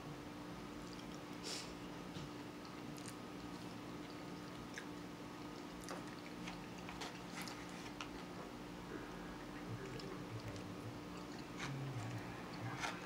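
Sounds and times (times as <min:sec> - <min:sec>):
steady low hum: 0:00.0 - 0:13.0
chewing: 0:00.8 - 0:01.4, 0:02.2 - 0:13.0.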